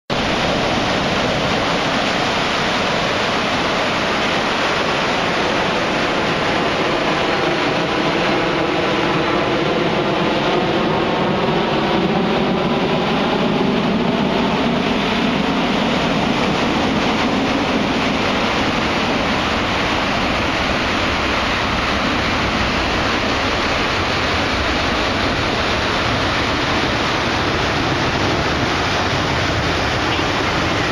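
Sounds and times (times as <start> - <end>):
wind: 0.0 - 30.9
water rushing: 0.1 - 30.9.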